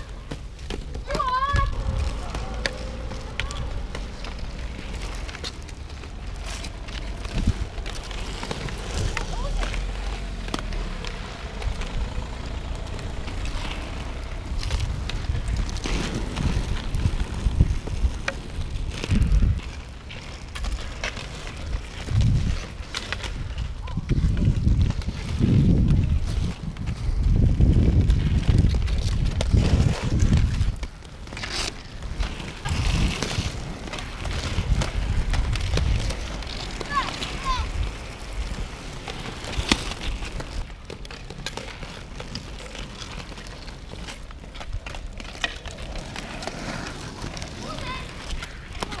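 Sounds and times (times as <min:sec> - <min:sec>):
skate wheels rolling on asphalt: 0:00.0 - 0:49.0
wind on microphone: 0:01.5 - 0:02.5, 0:07.2 - 0:07.9, 0:14.4 - 0:19.9, 0:22.0 - 0:30.9.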